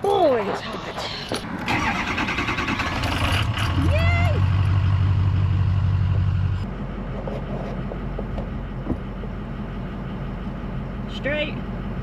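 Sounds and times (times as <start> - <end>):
truck engine rumbling: 0.0 - 12.0
quieter low rumble: 3.6 - 11.1.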